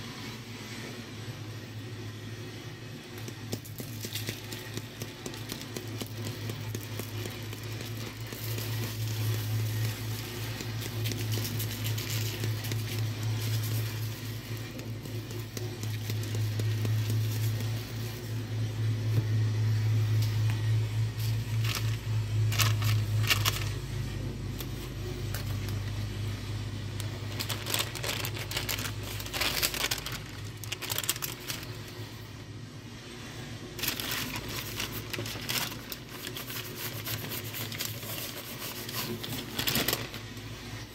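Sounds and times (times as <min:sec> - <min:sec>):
low steady hum: 0:00.0 - 0:40.9
parchment paper crinkling: 0:03.2 - 0:18.4, 0:20.2 - 0:26.0, 0:26.9 - 0:32.1, 0:33.8 - 0:40.3
seasoning shaken and sprinkled: 0:03.2 - 0:18.5, 0:33.8 - 0:39.9.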